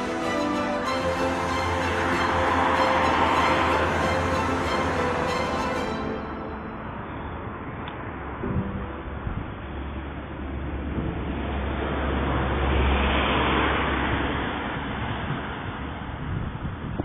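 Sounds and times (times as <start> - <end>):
car passing by: 0.0 - 8.4, 11.4 - 16.2.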